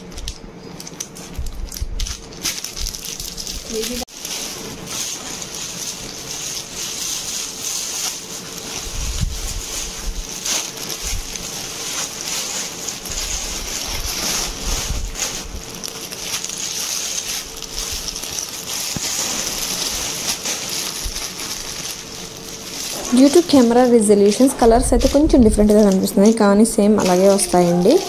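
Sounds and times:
plastic bags rustling and crinkling: 0:00.0 - 0:28.0.

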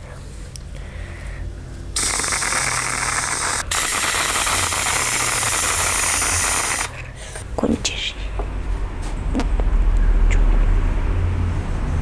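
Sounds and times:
cream dispenser hissing: 0:02.0 - 0:07.0.

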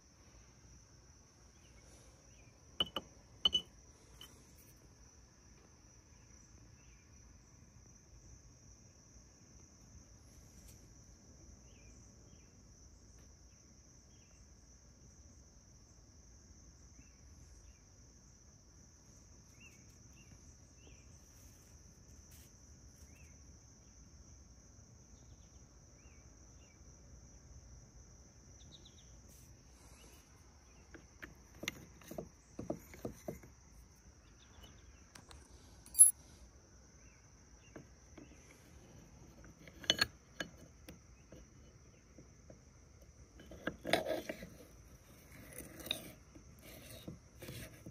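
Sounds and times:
cricket trill: 0:00.0 - 0:47.9
metal parts clicking and knocking: 0:02.8 - 0:04.4, 0:30.9 - 0:33.6, 0:35.2 - 0:36.2, 0:37.8 - 0:42.6, 0:43.4 - 0:47.9.

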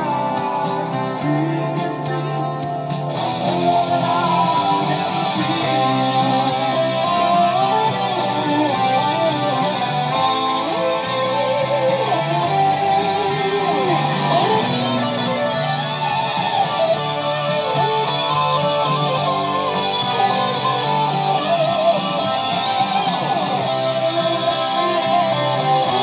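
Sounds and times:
guitar-led background music: 0:00.0 - 0:26.0.

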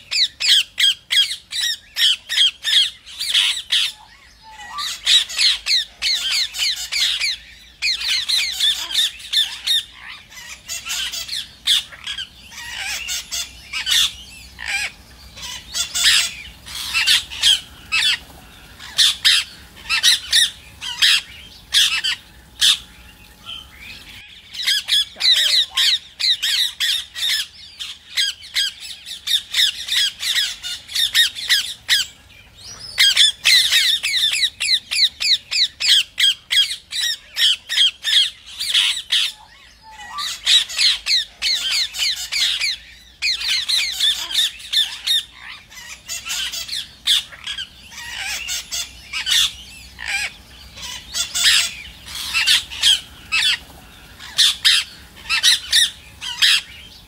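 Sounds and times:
parakeets squawking: 0:00.1 - 0:57.0.

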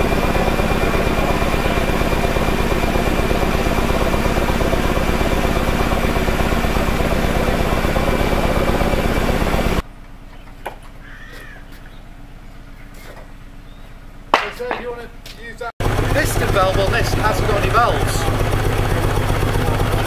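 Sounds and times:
steam engine running: 0:00.0 - 0:09.8, 0:15.8 - 0:20.0.

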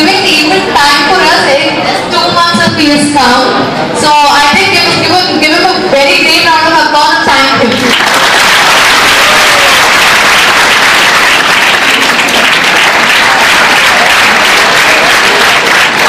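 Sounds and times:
audience applause: 0:07.7 - 0:16.0.

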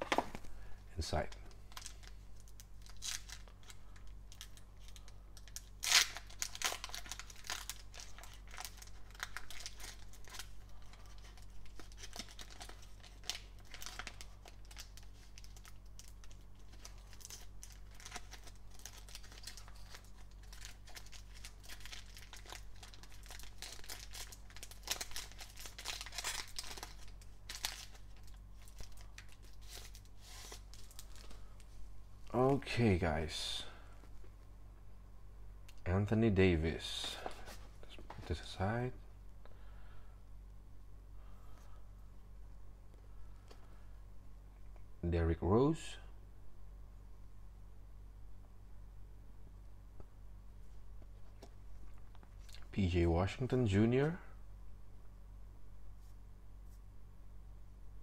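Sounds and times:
foil wrapper tearing and crinkling: 0:01.7 - 0:31.3.

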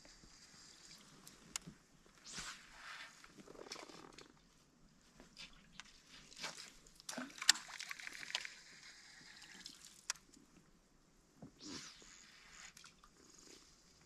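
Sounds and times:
fishing reel cranking whir: 0:12.0 - 0:12.8.

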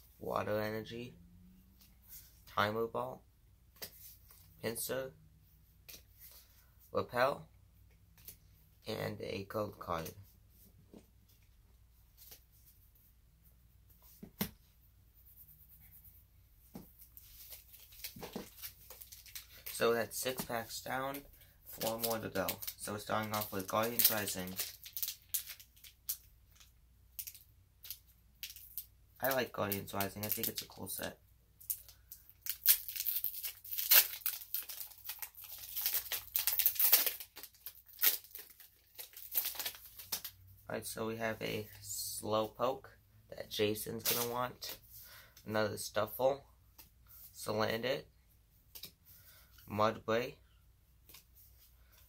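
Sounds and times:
foil wrapper tearing and crinkling: 0:21.8 - 0:26.2, 0:31.7 - 0:40.3.

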